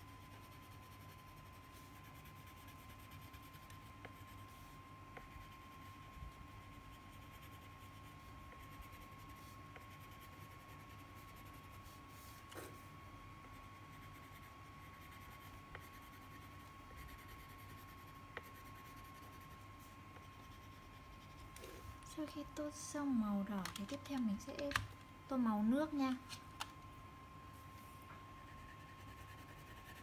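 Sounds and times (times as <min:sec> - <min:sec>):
crayon scratching on paper: 0:00.2 - 0:12.8, 0:13.5 - 0:19.6, 0:20.2 - 0:21.9, 0:28.4 - 0:30.0.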